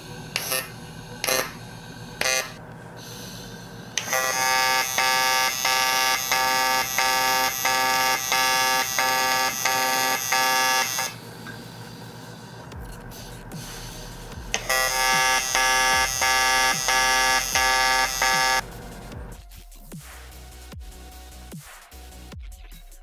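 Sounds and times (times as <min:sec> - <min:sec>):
welding arc buzzing: 0:00.0 - 0:11.4, 0:14.2 - 0:19.3.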